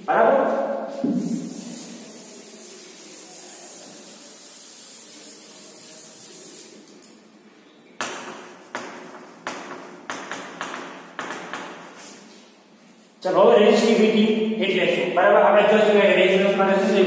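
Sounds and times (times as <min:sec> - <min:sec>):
duster rubbing chalkboard: 0:01.0 - 0:06.9
chalk striking board: 0:08.0 - 0:12.2.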